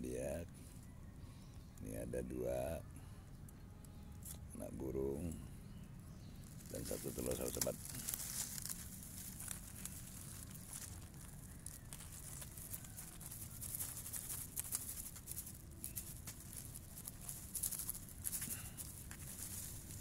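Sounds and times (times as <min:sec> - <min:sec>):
low steady rumble: 0:00.0 - 0:20.0
dry grass rustling and crackling: 0:04.2 - 0:20.0.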